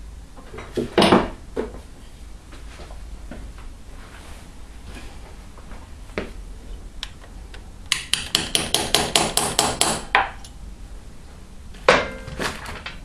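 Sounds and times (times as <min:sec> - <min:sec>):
hammer tapping metal punch: 0:07.9 - 0:10.4.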